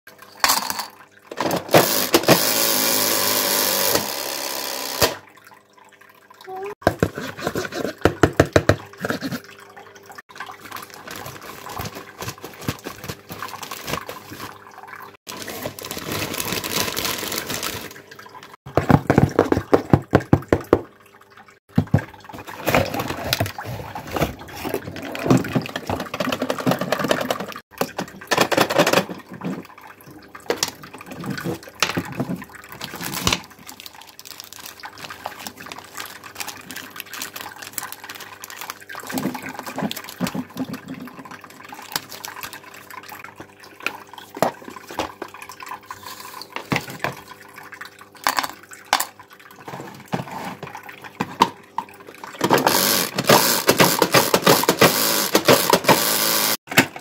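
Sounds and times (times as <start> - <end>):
plastic wrapper crinkling: 10.8 - 14.6, 15.3 - 18.0, 32.8 - 39.2.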